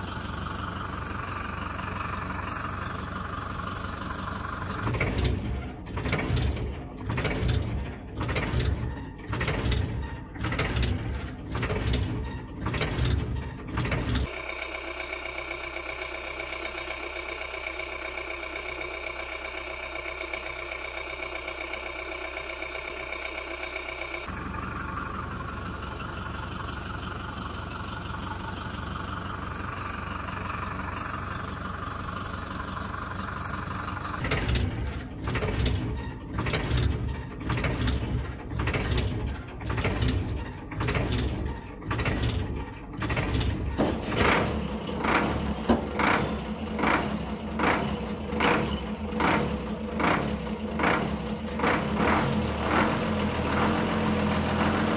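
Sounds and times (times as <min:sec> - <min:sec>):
truck engine chugging: 0:00.0 - 0:54.9.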